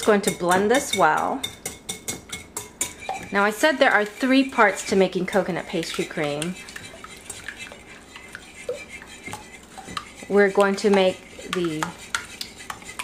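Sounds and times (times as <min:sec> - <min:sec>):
whisk clicking against glass bowl: 0:00.0 - 0:13.0
person speaking: 0:03.2 - 0:06.6, 0:10.3 - 0:12.0.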